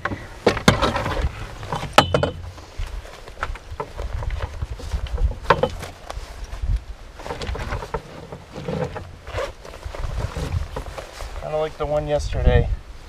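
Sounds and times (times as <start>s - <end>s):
knocks and clinks in a canoe: 0.0s - 6.1s, 7.2s - 9.5s
wind rumbling on microphone: 0.0s - 13.0s.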